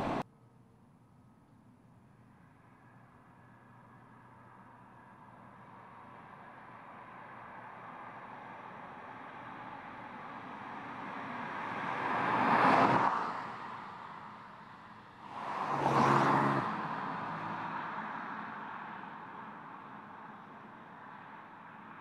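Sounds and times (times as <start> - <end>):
car passing by: 0.0 - 0.2, 10.7 - 14.3, 15.2 - 19.9
low engine hum: 0.0 - 0.2.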